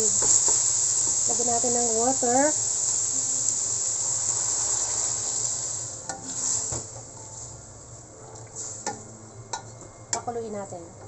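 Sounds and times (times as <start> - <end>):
water poured into hot pan hissing: 0.0 - 6.9
meat sizzling in a wok: 0.0 - 9.7.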